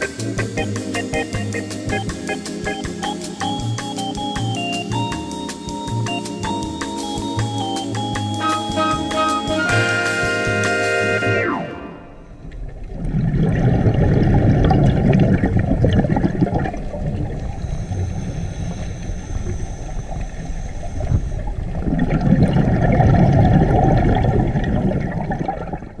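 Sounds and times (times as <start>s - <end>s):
underwater water gurgling: 12.0s - 26.0s.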